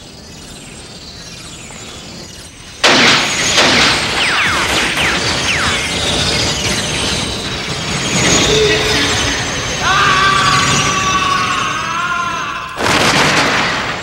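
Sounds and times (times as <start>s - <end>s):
noisy clattering din: 2.4s - 14.0s
sudden loud crash: 2.8s - 9.8s, 12.8s - 14.0s.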